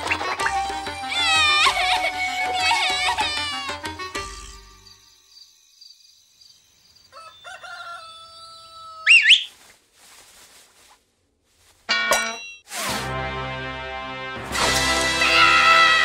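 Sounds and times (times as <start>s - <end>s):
cartoon rooster crowing: 7.1s - 9.3s.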